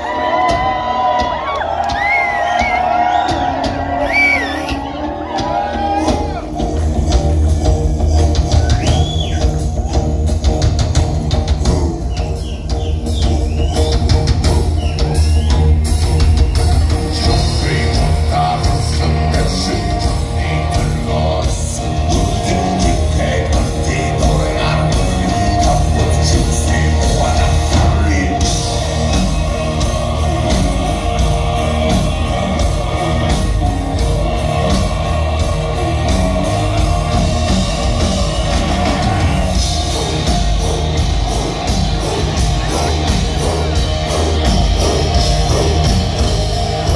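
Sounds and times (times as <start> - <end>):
drum kit: 0.0 - 46.9
heavy bass and guitar: 0.0 - 46.9
sung vocals: 17.0 - 46.9.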